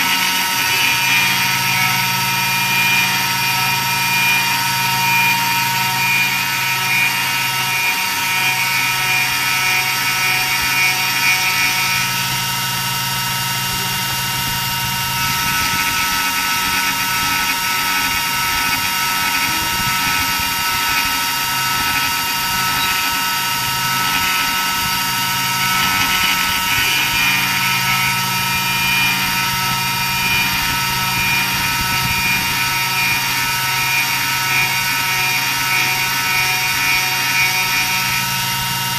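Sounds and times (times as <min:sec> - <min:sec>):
low hum: 0:00.0 - 0:38.9
router spindle whining: 0:00.0 - 0:38.9
rasping hiss of cutting wood: 0:13.2 - 0:38.7.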